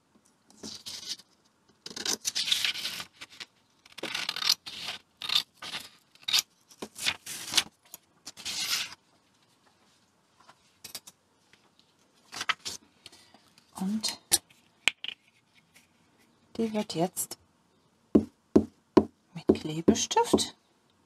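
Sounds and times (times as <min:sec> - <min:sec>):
paper rustling: 0:11.6 - 0:12.8.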